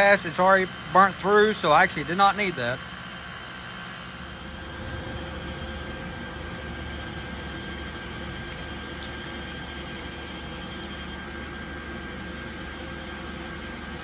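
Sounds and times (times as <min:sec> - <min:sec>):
machinery hum and hiss: 0:00.0 - 0:14.0
faint high steady tones: 0:04.0 - 0:13.7.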